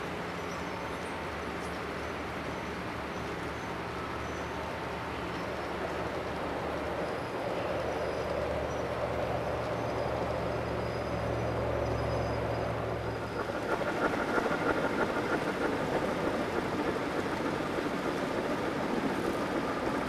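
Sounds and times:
steady low hum: 8.6s - 20.0s.

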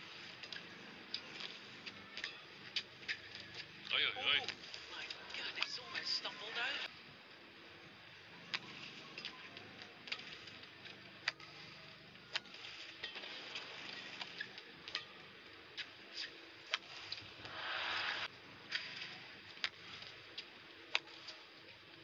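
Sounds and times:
faint arena background: 0.0s - 22.0s
rackets striking shuttlecock: 12.3s - 17.8s.

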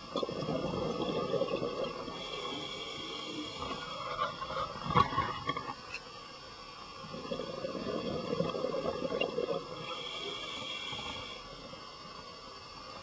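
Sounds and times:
regulator hiss: 0.0s - 4.9s, 5.8s - 13.0s
exhaled bubbles rumbling underwater: 0.0s - 5.7s, 7.0s - 10.1s.

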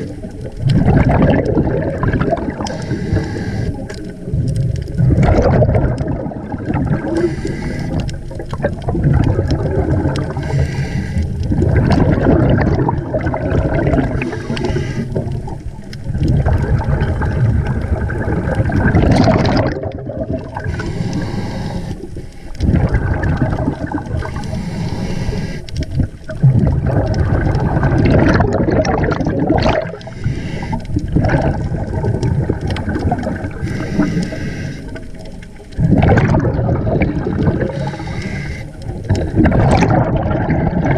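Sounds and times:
underwater bubbles gurgling: 0.0s - 40.9s.

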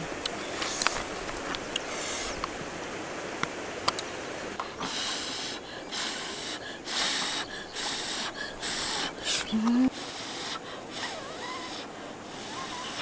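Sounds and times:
sniffing: 4.7s - 13.0s.

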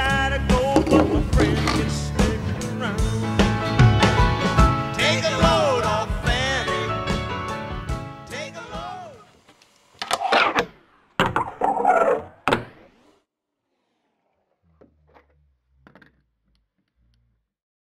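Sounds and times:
fingerboard rolling on wood: 0.6s - 2.0s, 10.0s - 17.4s.

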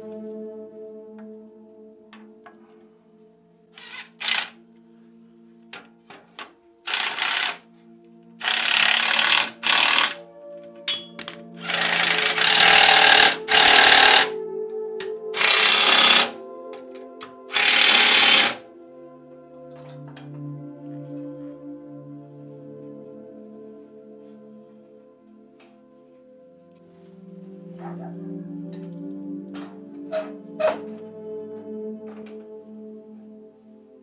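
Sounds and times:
impact driver hammering bolts: 10.9s - 14.3s.

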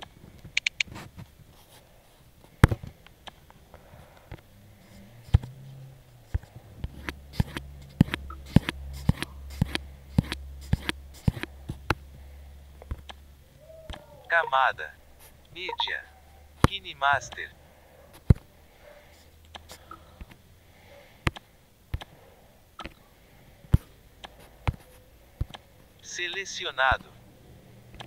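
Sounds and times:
low steady hum: 0.0s - 28.0s
sharp device clicks: 0.5s - 0.9s.

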